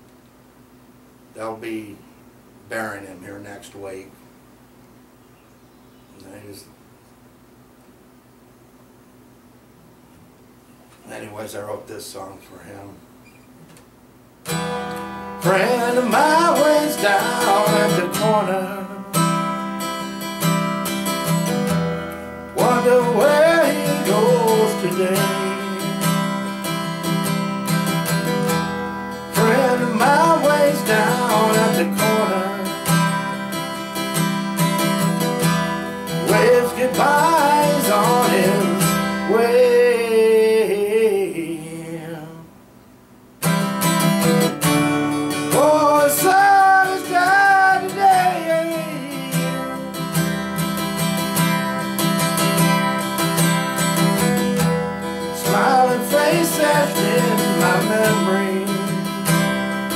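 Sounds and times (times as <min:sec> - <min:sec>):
acoustic guitar strumming chords: 0:14.4 - 0:42.5, 0:43.4 - 0:59.9
man singing: 0:15.4 - 0:19.0, 0:22.6 - 0:26.2, 0:29.3 - 0:33.1, 0:36.0 - 0:42.5, 0:45.3 - 0:50.2, 0:55.2 - 0:59.2.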